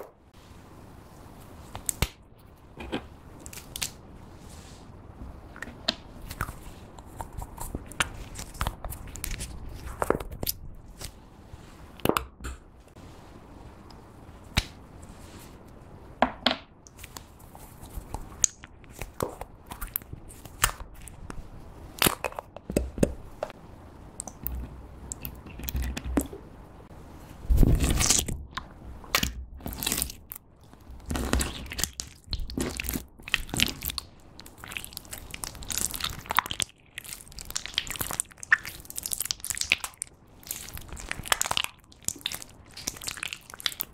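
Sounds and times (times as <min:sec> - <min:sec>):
slime squelching by hand: 0:27.4 - 0:43.9.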